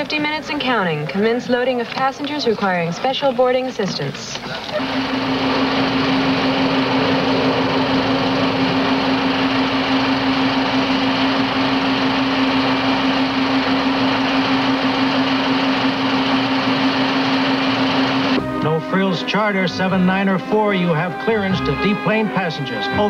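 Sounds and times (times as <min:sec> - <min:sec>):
conveyor belt humming: 0:04.6 - 0:23.0.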